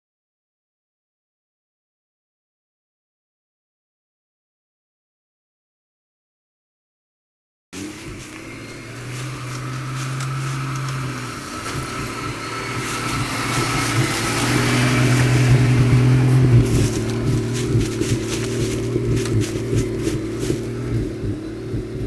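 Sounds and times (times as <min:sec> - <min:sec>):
car engine running at low speed: 0:07.8 - 0:22.0
crackling clicks: 0:12.8 - 0:20.8.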